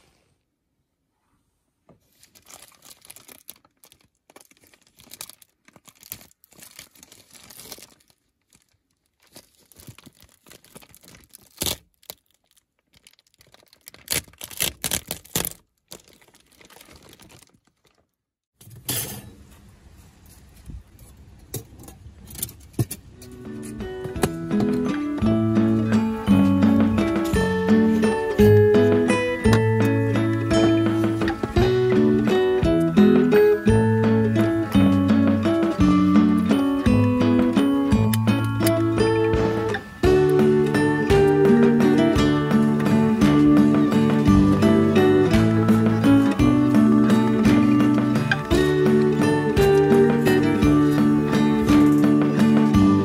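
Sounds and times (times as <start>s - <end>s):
plastic tarp crinkling: 2.0s - 18.3s.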